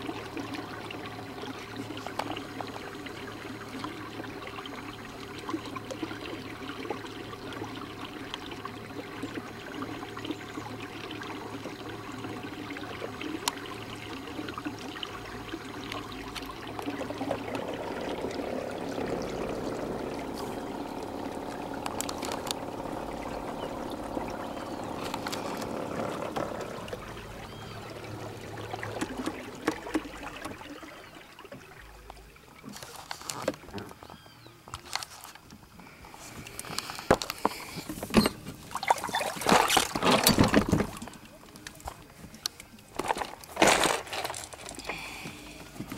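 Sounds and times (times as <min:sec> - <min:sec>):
low motor hum: 0:00.0 - 0:34.5
water splashing along hull: 0:00.0 - 0:45.9.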